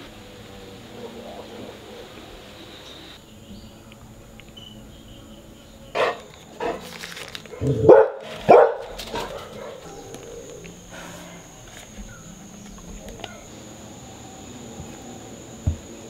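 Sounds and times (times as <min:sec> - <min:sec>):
dog barking: 0:06.0 - 0:06.8, 0:07.5 - 0:10.1.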